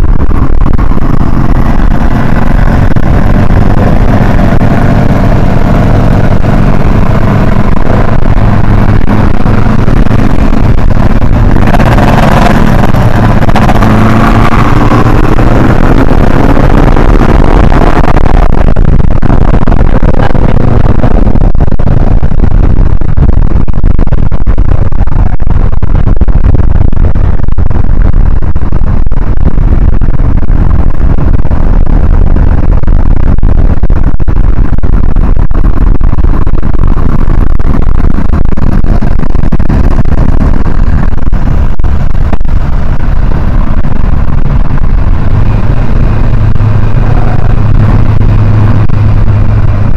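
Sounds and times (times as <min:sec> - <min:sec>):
car engine pulling hard: 0:00.0 - 0:49.9
road rumble: 0:00.0 - 0:49.9
wind rumble on microphone: 0:00.0 - 0:49.9.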